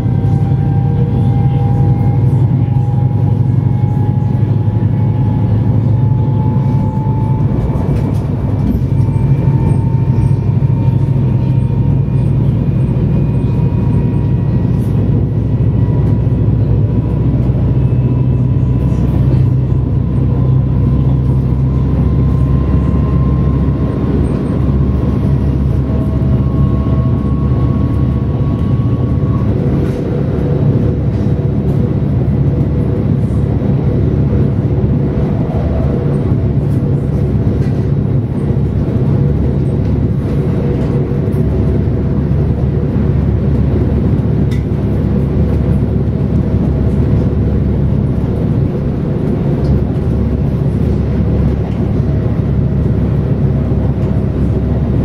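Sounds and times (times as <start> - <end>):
low tone: 0.0 - 43.4
traction drive whine: 0.0 - 55.0
train wheels rumbling: 0.0 - 55.0.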